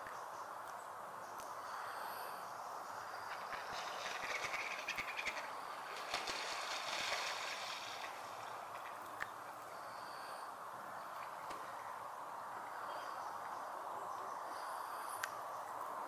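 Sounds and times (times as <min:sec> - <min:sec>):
soft outdoor hiss: 0:00.0 - 0:16.0
rapid rattling animal chatter: 0:03.3 - 0:09.0.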